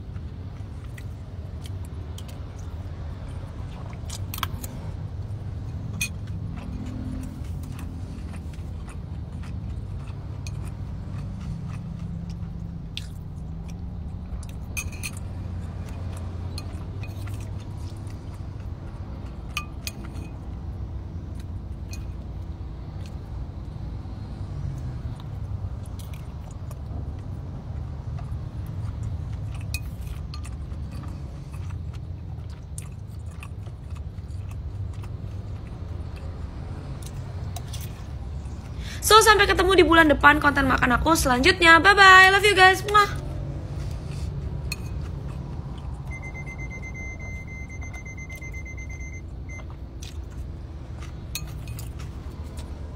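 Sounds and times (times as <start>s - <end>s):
person chewing: 0.0s - 39.0s, 43.2s - 52.9s
low rumble inside car: 43.2s - 50.9s.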